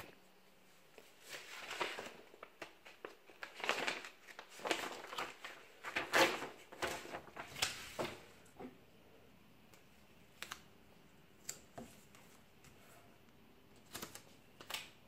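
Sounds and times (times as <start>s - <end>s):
paper rustling and sliding: 1.0s - 8.4s.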